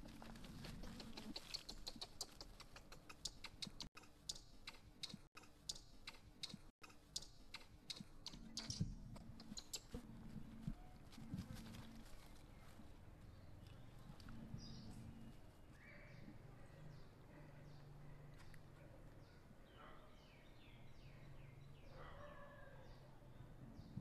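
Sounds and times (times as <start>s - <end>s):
dry leaves crackling and rustling: 10.4s - 13.1s.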